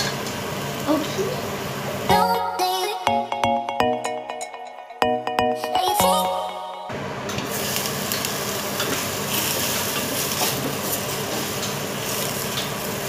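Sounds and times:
vegetables boiling in a pot: 0.0s - 2.1s, 7.3s - 13.0s.

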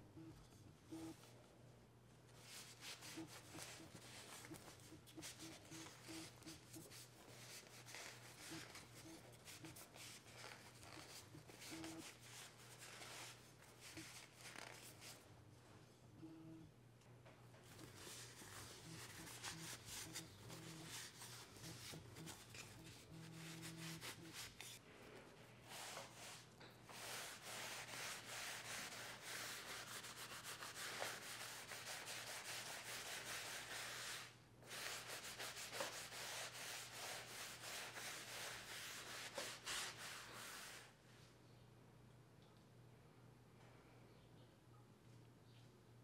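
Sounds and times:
cloth rubbing wood: 2.4s - 15.2s, 17.7s - 24.8s, 25.7s - 40.9s.

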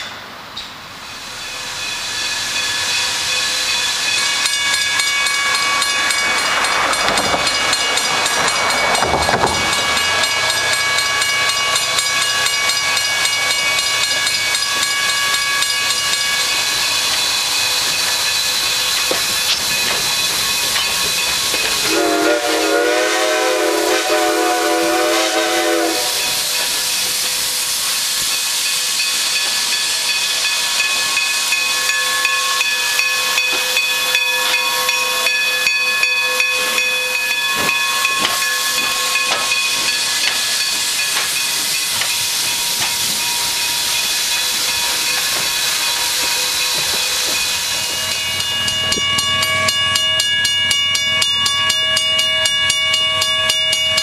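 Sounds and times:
steam hissing: 0.8s - 49.3s
steam locomotive whistle: 21.8s - 26.8s, 31.8s - 40.0s.

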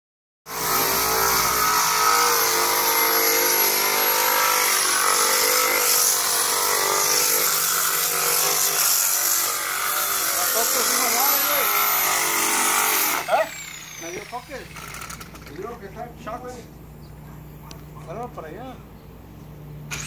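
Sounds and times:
electric sander sanding plaster: 0.5s - 15.4s.

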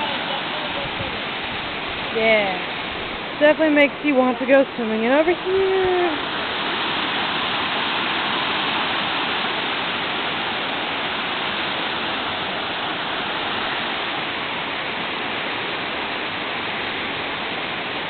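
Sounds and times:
water rushing over rocks: 0.0s - 18.0s.

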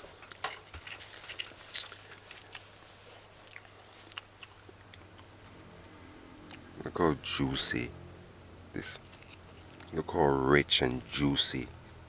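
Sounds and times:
person chewing food: 0.0s - 5.6s, 6.2s - 6.7s, 9.0s - 10.0s.

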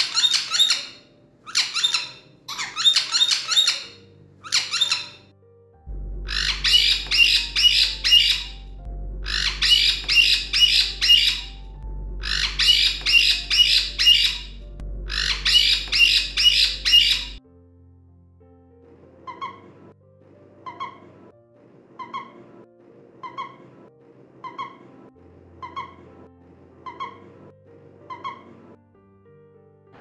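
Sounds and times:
parrot squawking: 0.0s - 5.3s, 6.3s - 17.4s, 19.2s - 19.7s, 20.6s - 21.0s, 22.0s - 22.4s, 23.2s - 23.6s, 24.4s - 24.9s, 25.6s - 26.0s, 26.8s - 27.2s, 28.0s - 28.5s.

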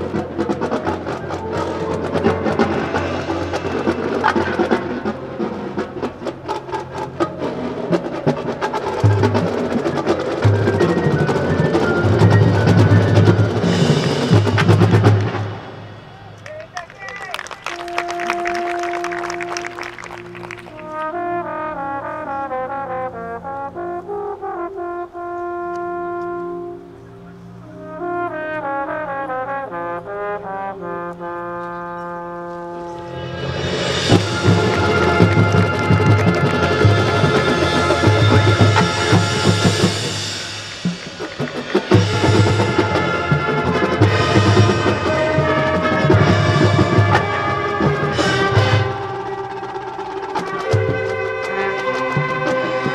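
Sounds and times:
brass section playing: 0.0s - 52.9s
low steady brass tones: 17.5s - 52.9s
sharp percussion strikes: 33.0s - 52.9s.

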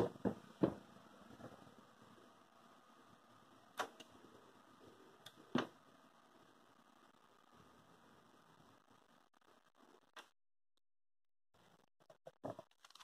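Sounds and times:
faint steady hum: 0.0s - 10.3s.

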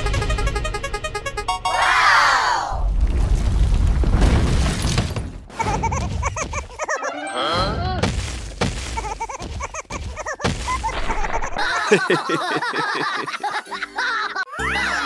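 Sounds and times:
musical tones: 0.0s - 2.0s.

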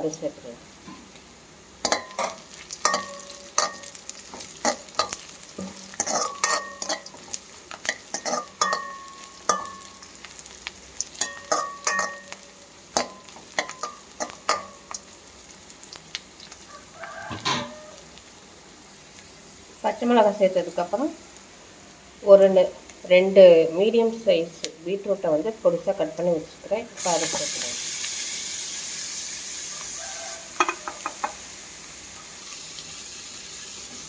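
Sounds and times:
food sizzling in oil: 0.0s - 34.0s
spoon clinking and scraping pan: 1.8s - 10.1s, 11.2s - 15.0s, 30.6s - 31.4s.

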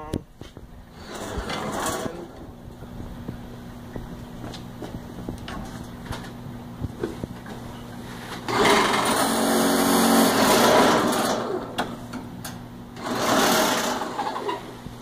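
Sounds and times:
electric hydraulic pump running: 8.4s - 12.1s, 13.0s - 14.8s.

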